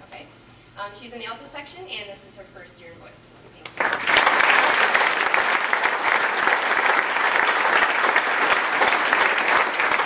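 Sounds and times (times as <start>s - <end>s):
applause: 3.7s - 10.0s.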